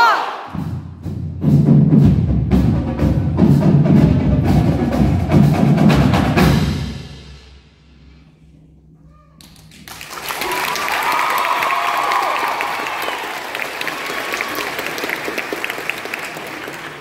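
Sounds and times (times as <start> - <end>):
marimbas and drums playing: 0.6 - 7.0
audience applause: 9.4 - 17.0.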